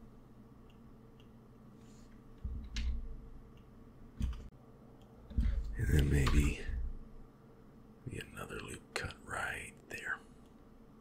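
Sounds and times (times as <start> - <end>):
keyboard and mouse clicks: 2.3 - 6.5.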